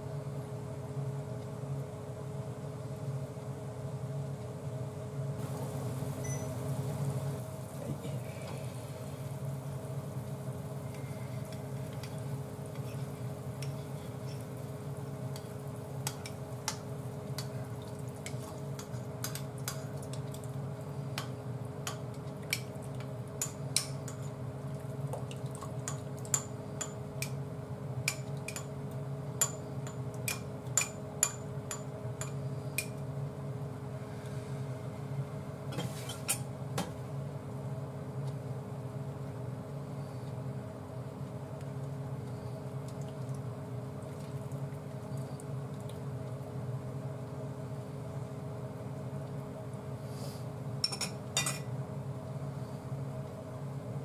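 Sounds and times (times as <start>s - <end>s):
induction hob electrical hum: 0.0s - 54.0s
utensil clinking on bowl and pan: 28.1s - 28.7s.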